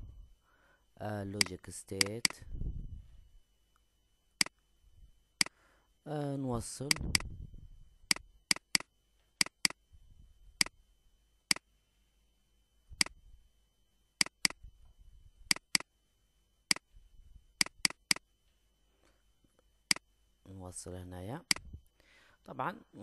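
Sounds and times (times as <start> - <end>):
mouse button clicking: 15.5 - 15.8.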